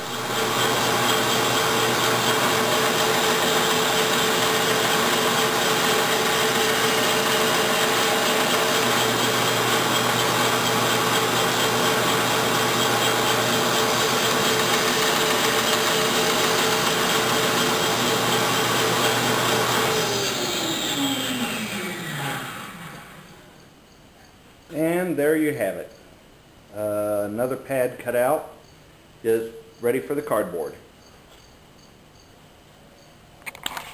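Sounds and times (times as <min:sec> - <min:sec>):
band saw cutting wood: 0:00.0 - 0:23.4.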